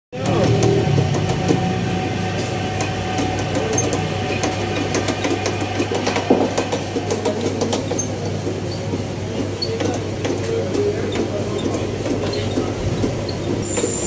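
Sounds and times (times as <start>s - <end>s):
low machine hum: 0.2s - 10.2s.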